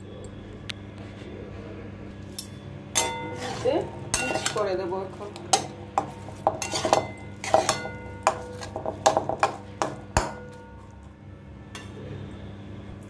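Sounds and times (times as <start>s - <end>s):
metal spatula scraping pan: 3.0s - 10.9s.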